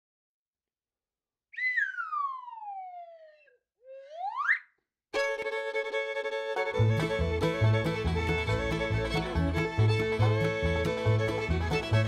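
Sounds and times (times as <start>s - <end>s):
whistle sliding in pitch: 1.6s - 4.7s
fiddle music: 5.2s - 12.0s.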